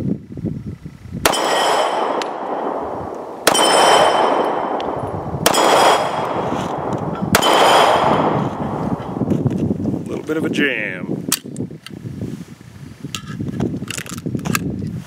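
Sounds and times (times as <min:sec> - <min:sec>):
pistol shots with echo: 0:01.2 - 0:09.2.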